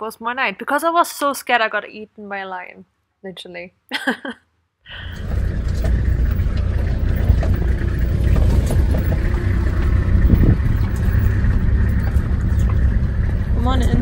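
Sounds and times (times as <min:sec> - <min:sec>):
vehicle engine and road rumble: 0:04.9 - 0:14.0
faint rattles: 0:05.0 - 0:14.0.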